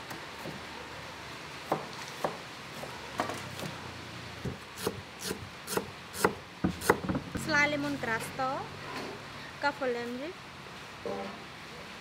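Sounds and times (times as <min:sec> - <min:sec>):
cleaver chopping on wooden board: 0:05.7 - 0:07.5.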